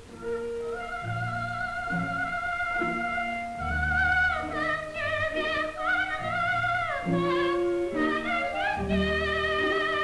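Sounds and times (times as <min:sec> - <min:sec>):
operatic soprano singing: 0:00.0 - 0:10.0.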